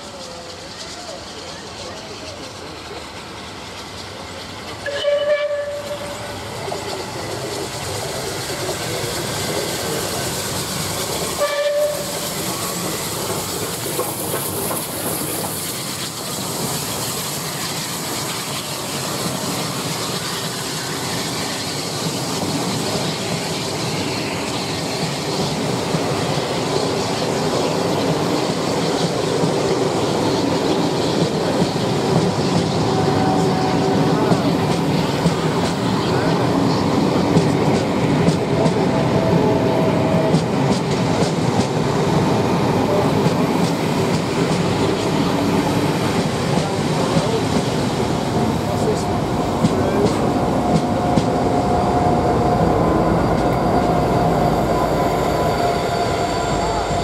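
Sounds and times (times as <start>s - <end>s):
train coaches clattering over rails: 0.0s - 57.0s
steam locomotive whistle blasts: 4.8s - 6.3s, 11.3s - 12.4s, 50.7s - 57.0s.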